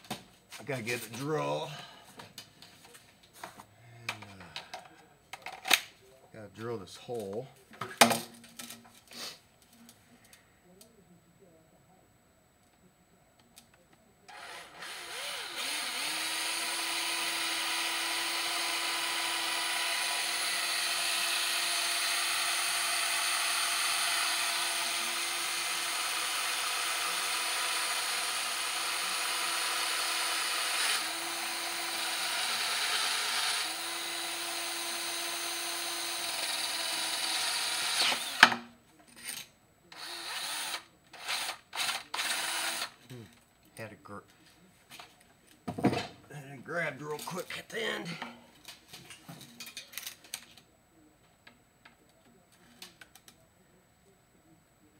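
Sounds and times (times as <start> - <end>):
electric drill running: 14.3 - 38.6, 40.0 - 43.0.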